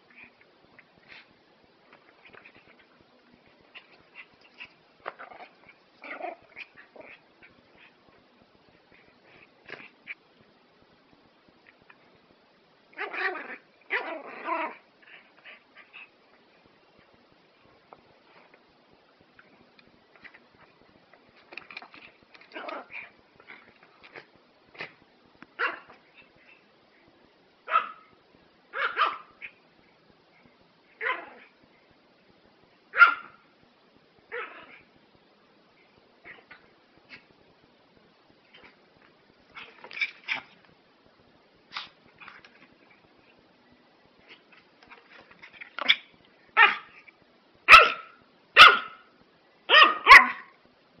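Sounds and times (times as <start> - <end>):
small dog barking: 25.6 - 26.0, 27.6 - 28.1, 28.7 - 29.6, 31.0 - 31.5, 32.9 - 33.5, 45.8 - 47.0, 47.7 - 49.1, 49.7 - 50.6.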